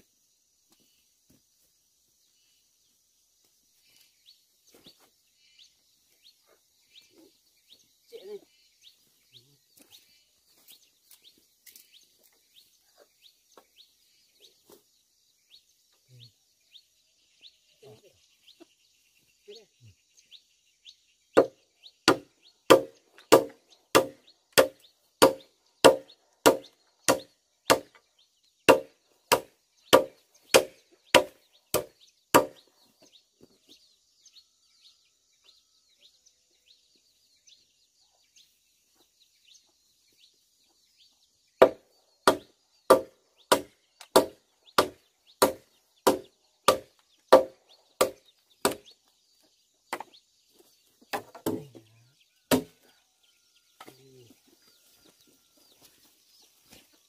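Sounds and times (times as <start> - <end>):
machete chopping bamboo: 21.4 - 28.0, 28.7 - 32.6, 41.6 - 48.9, 51.1 - 51.8, 52.5 - 52.8.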